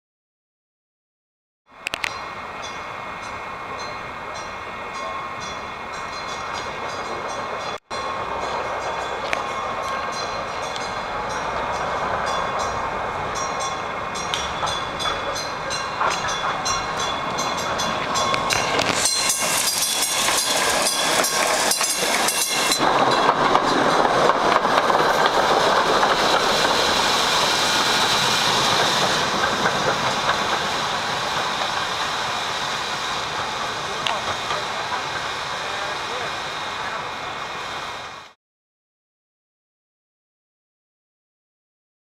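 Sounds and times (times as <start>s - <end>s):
streetcar rumble and hiss: 1.7s - 38.4s
streetcar wheels clicking over rail joints: 6.0s - 37.0s.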